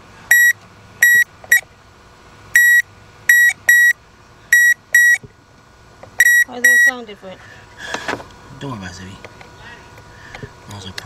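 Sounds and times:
electrical tester beeping: 0.3 - 1.6, 2.6 - 5.2, 6.2 - 7.0.

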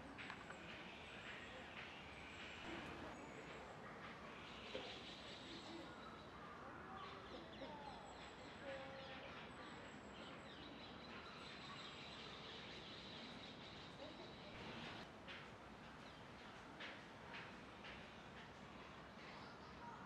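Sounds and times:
faint outdoor background noise: 0.0 - 20.0.

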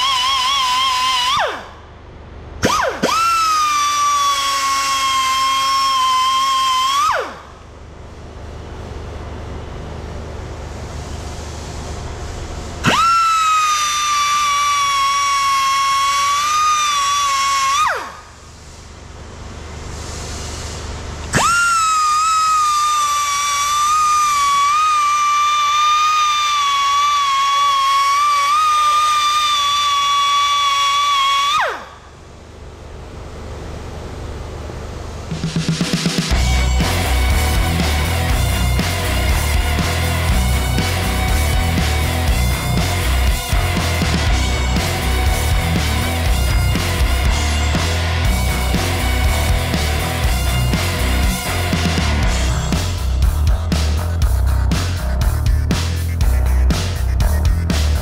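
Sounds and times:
low hum: 31.9 - 58.0
die grinder whining: 36.3 - 53.0.

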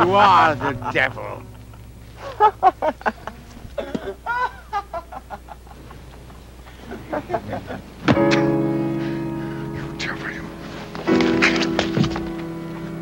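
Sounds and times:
man shouting: 0.0 - 1.4.

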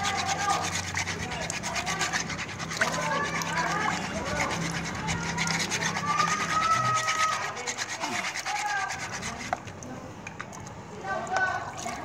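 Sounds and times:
sandpaper scratching on metal: 0.0 - 9.6.

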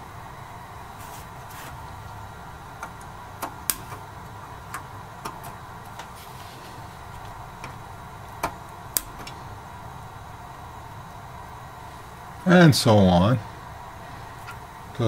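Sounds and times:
side cutters snipping chip legs: 8.4 - 9.4.

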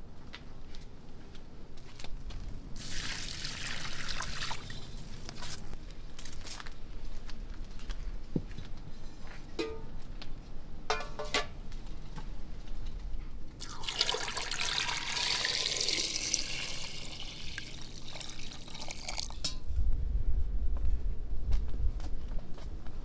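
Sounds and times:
water pouring and splashing: 2.8 - 5.0, 13.6 - 19.5
low rumble: 19.6 - 22.2.

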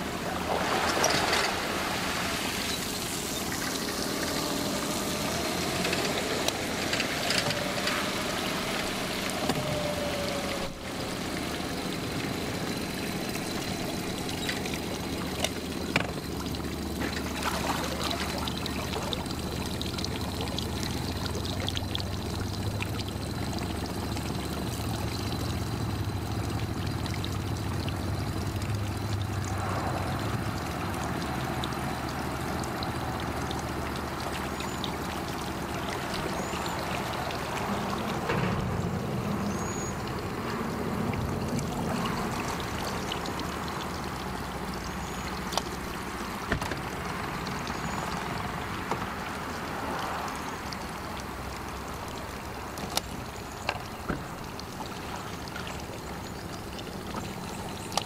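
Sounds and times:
outboard motor idling: 0.0 - 58.0
water trickling: 0.0 - 58.0.

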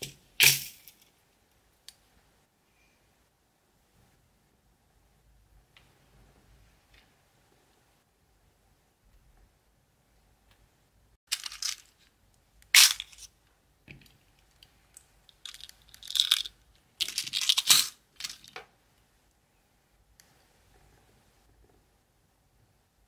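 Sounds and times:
small metal parts rattling: 11.3 - 12.0, 15.3 - 18.6.

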